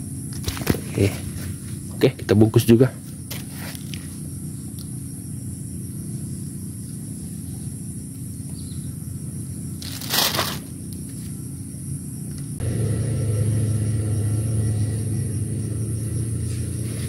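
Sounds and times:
low motor hum: 0:00.0 - 0:17.0
low outdoor rumble: 0:00.0 - 0:17.0
rustle or crunch: 0:03.3 - 0:04.2, 0:09.8 - 0:11.4.

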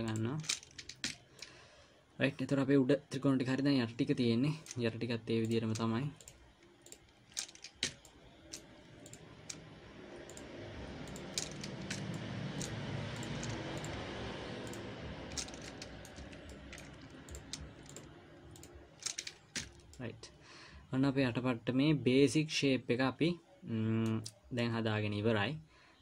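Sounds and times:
low rushing background noise: 0:00.0 - 0:23.9
mouse and keyboard clicks: 0:11.1 - 0:14.0, 0:14.7 - 0:20.0.

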